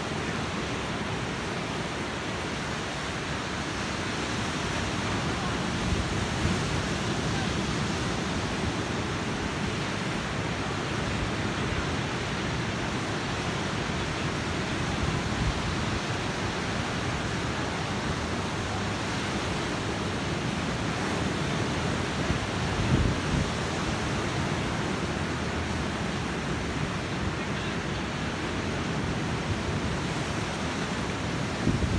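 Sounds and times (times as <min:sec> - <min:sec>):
ocean surf breaking: 0:00.0 - 0:31.9.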